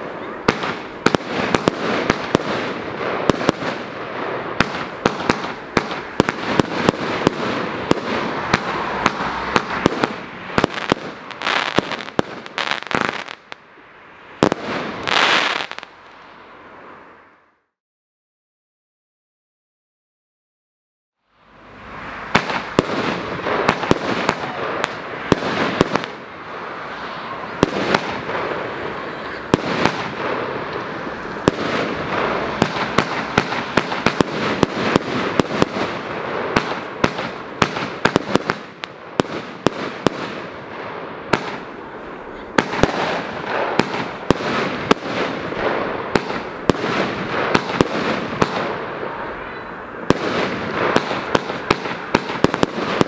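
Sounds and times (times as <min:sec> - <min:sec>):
fireworks banging and crackling: 0:00.0 - 0:17.0, 0:21.8 - 0:53.0.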